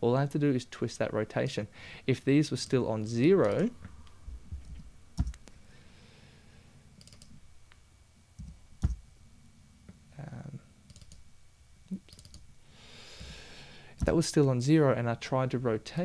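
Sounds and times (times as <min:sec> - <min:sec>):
computer mouse clicking: 0:03.4 - 0:03.7, 0:07.0 - 0:07.4, 0:10.9 - 0:11.2, 0:12.1 - 0:12.4.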